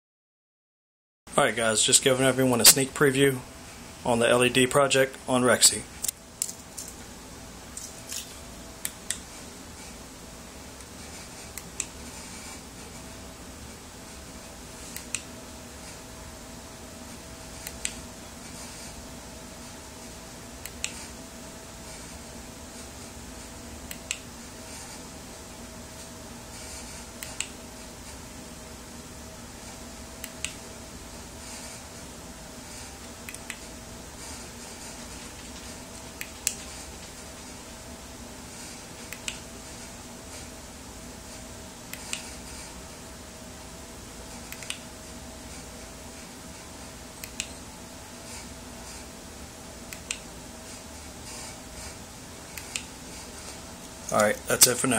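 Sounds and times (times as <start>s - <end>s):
faint steady hum: 1.3s - 54.9s
steady background hiss: 1.3s - 54.9s
soft clicks: 39.1s - 39.4s, 44.5s - 44.8s, 47.2s - 47.6s.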